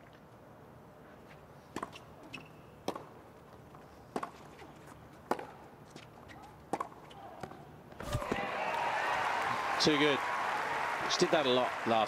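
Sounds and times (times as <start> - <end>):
tennis ball bouncing: 1.7 - 3.2, 4.1 - 5.7, 6.4 - 7.6
tennis racket striking ball: 5.3 - 5.6.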